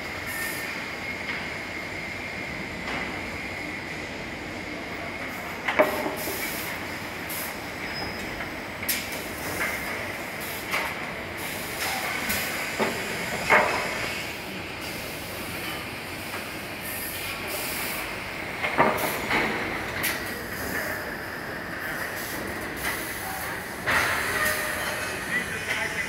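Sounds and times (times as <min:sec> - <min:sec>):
saw line conveyor running: 0:05.8 - 0:26.0
compressed air hisses: 0:16.8 - 0:18.1.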